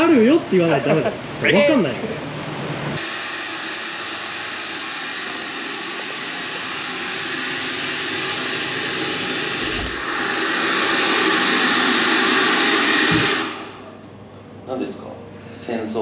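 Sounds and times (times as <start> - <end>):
hair dryer running: 3.0 - 14.0.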